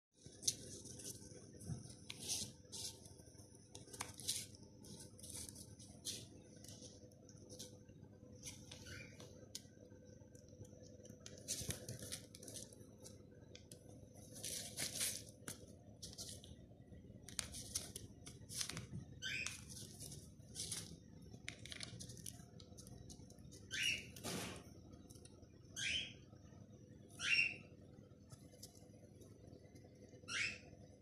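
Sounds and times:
cockatiel chirps: 0:08.8 - 0:09.2, 0:23.7 - 0:24.1, 0:25.8 - 0:26.2, 0:27.2 - 0:27.7, 0:30.2 - 0:30.7.

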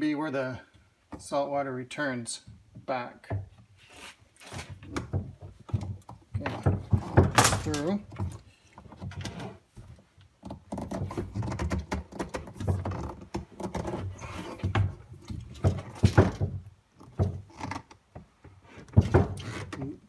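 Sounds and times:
pipe scraping against rubber: 0:03.8 - 0:04.9, 0:10.7 - 0:15.0.

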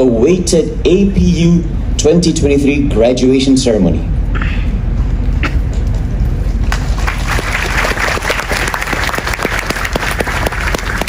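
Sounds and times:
audience applauding: 0:06.7 - 0:11.0
sharp close clapping: 0:06.7 - 0:11.0.

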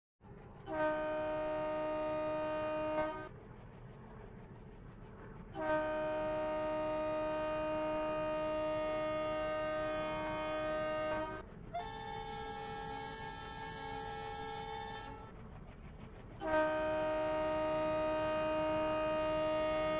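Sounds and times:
train horn blasts: 0:00.6 - 0:03.3, 0:05.6 - 0:15.3, 0:16.4 - 0:19.9.

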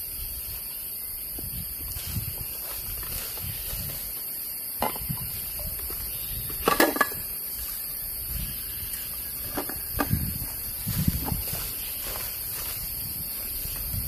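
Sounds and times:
forest insects droning: 0:00.0 - 0:14.0
containers clattering: 0:06.6 - 0:07.3.

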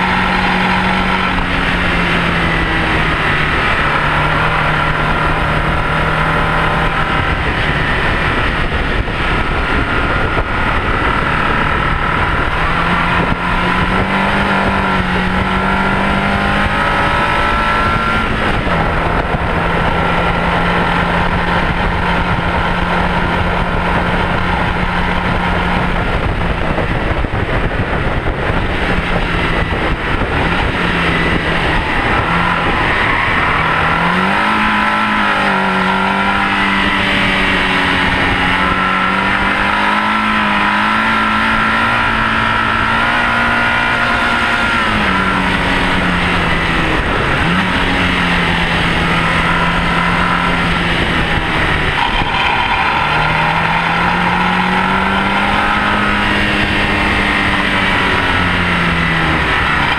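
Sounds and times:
car engine revving high: 0:00.0 - 0:59.9
wind roar: 0:00.0 - 0:59.9
tyre roar: 0:30.4 - 0:59.9.

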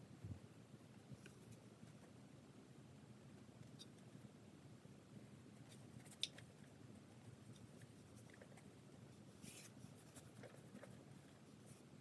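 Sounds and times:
paintbrush strokes on canvas: 0:07.2 - 0:12.0.

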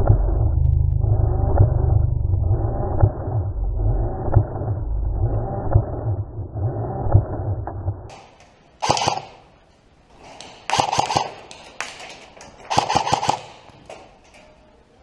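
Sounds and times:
airsoft gun firing bursts: 0:08.8 - 0:09.4, 0:10.4 - 0:13.8.

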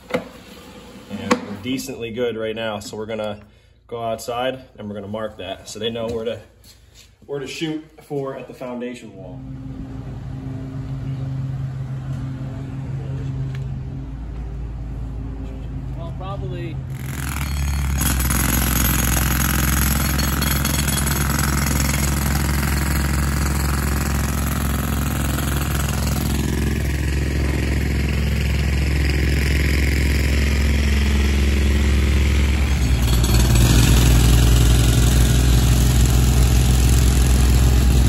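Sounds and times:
diesel excavator idling: 0:09.4 - 0:38.0.

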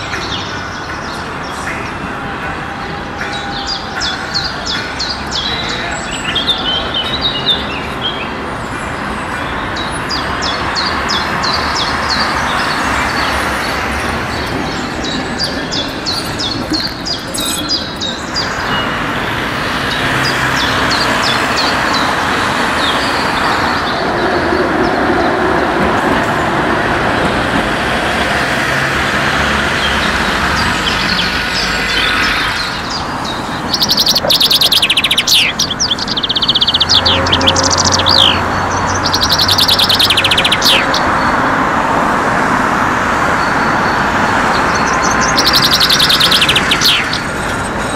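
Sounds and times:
birds chirping: 0:00.0 - 0:47.9
street traffic: 0:00.0 - 0:47.9
rapid high chirping: 0:13.8 - 0:19.0.

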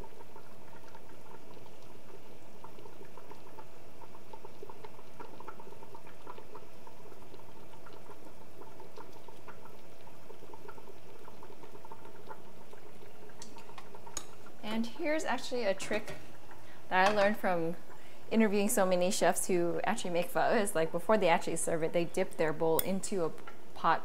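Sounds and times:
broth bubbling at a boil: 0:00.0 - 0:24.0.

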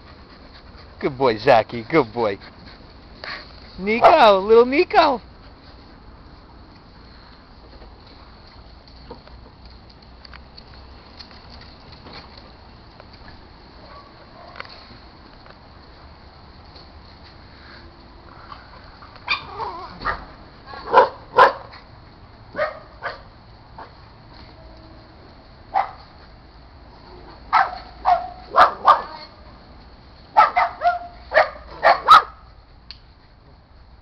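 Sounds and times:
dogs barking: 0:04.0 - 0:04.3, 0:19.3 - 0:21.7, 0:22.5 - 0:23.9, 0:27.5 - 0:29.2, 0:30.4 - 0:32.5.

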